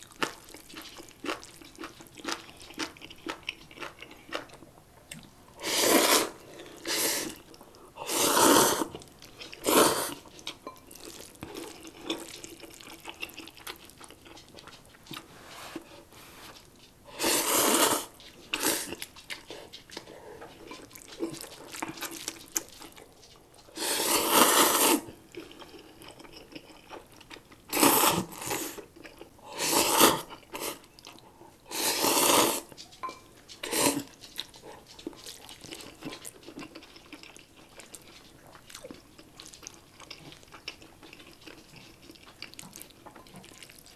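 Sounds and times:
chewing and wet mouth sounds: 0.0 - 5.5, 6.2 - 15.9, 16.5 - 43.9
noodles being slurped: 5.6 - 14.2, 17.1 - 19.5, 23.7 - 25.1, 27.7 - 28.9, 31.7 - 32.7, 33.6 - 34.6.

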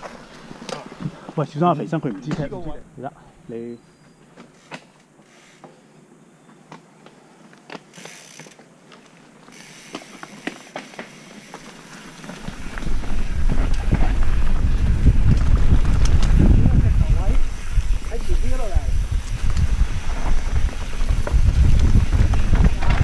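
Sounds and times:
rumble of wind and tyres: 7.5 - 23.0
bike drivetrain clicks and rattles: 7.6 - 23.0.

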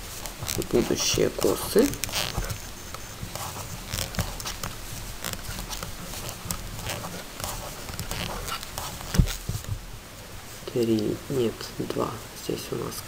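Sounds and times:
yarn rustling: 0.0 - 11.6
knitting needles clicking: 0.2 - 9.4.

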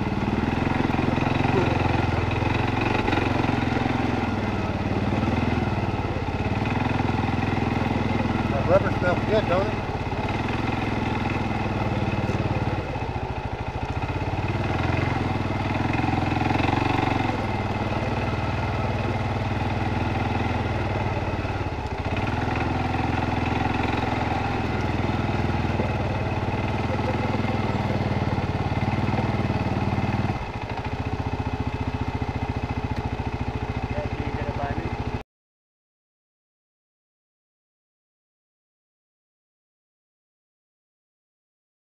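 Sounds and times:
atv engine running: 0.0 - 35.2.

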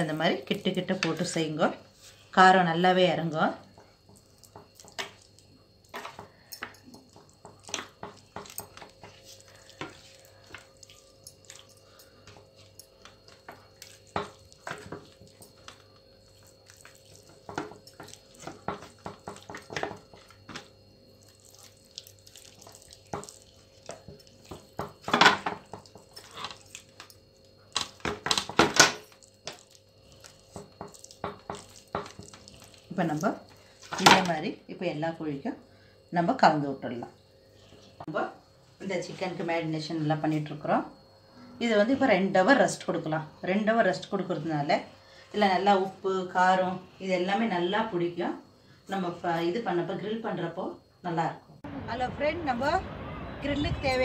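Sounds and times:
hands squelching marinade into chicken: 13.4 - 20.6, 21.2 - 24.8, 29.2 - 33.8.

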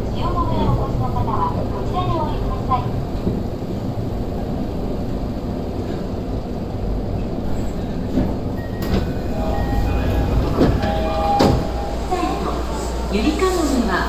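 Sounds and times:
subway train low rumble: 0.0 - 14.0
sliding doors opening: 7.0 - 13.8.

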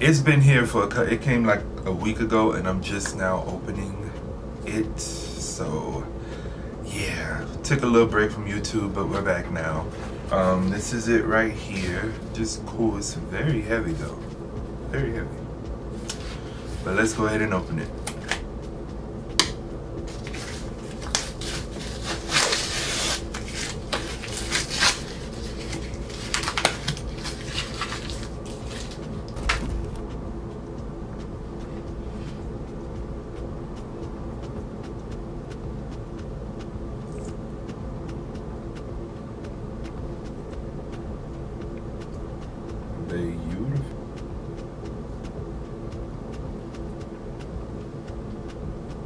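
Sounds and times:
steady low hum: 0.0 - 49.0
scissors cutting tape: 20.2 - 29.6.

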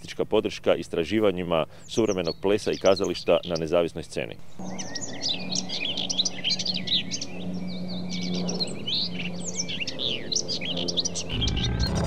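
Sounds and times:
small birds chirping: 0.0 - 12.0
steady low hum: 4.3 - 12.0.

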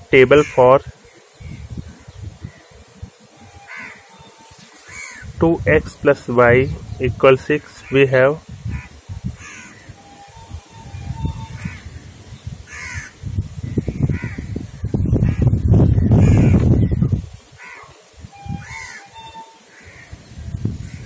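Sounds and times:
crows cawing: 0.3 - 2.8, 3.5 - 5.3, 8.7 - 10.0, 11.6 - 12.0, 12.7 - 13.2, 14.0 - 14.5, 16.1 - 16.7, 17.6 - 18.0, 18.6 - 20.2.

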